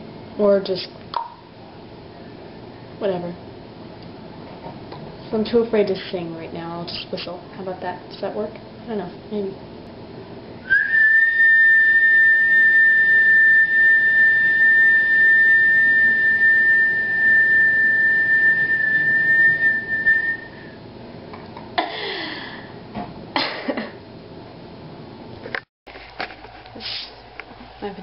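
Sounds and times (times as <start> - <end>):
person whistling high note: 10.7 - 20.8.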